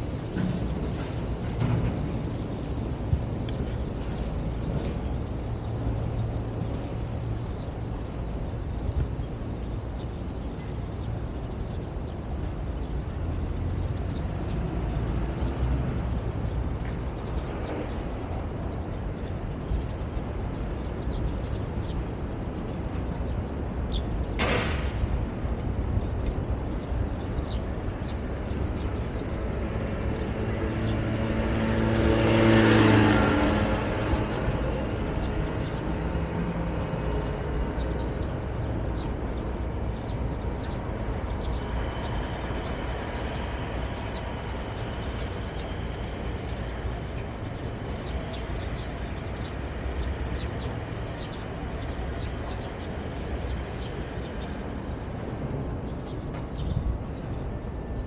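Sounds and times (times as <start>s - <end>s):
city traffic hum: 0.0s - 58.0s
vehicle passing by: 29.7s - 40.1s.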